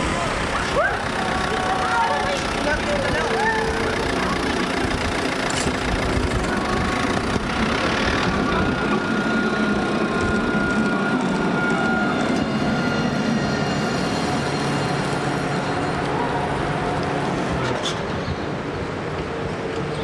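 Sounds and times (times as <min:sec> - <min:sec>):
tram approaching on track: 0:00.0 - 0:20.0
car engine running: 0:00.3 - 0:11.4.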